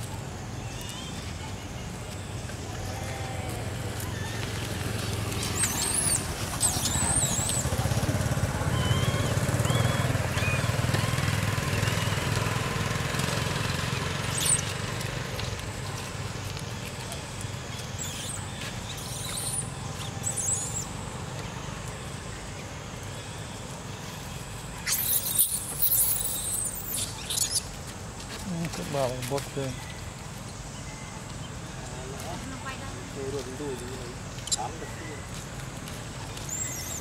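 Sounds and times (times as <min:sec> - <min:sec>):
vehicle engine humming: 0:00.0 - 0:37.0
high-pitched chirps and squeals: 0:05.4 - 0:07.9, 0:08.6 - 0:12.2, 0:14.2 - 0:14.8, 0:18.0 - 0:21.0, 0:24.8 - 0:27.8, 0:34.3 - 0:35.2, 0:36.2 - 0:37.0.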